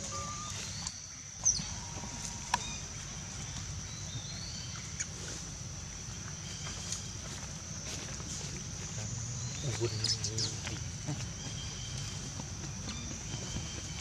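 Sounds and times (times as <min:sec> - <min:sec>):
high-pitched whine: 0:00.0 - 0:05.1.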